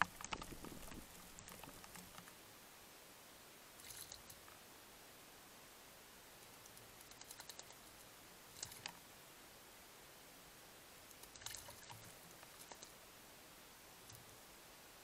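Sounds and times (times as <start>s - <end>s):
bird splashing water with wings: 0.0s - 2.3s, 3.8s - 4.4s, 6.7s - 7.8s, 8.5s - 8.9s, 11.1s - 13.0s.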